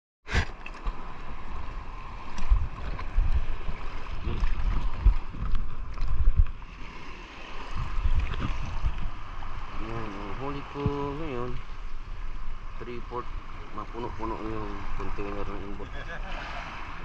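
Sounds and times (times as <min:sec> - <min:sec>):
water sloshing and splashing: 0:00.3 - 0:17.0
muffled low thumps underwater: 0:02.4 - 0:06.6, 0:07.7 - 0:09.5.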